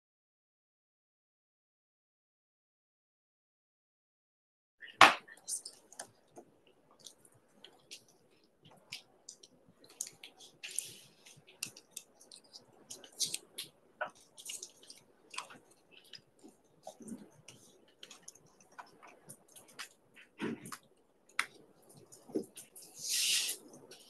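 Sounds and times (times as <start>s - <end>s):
faint clicks and taps: 5.1s - 22.9s.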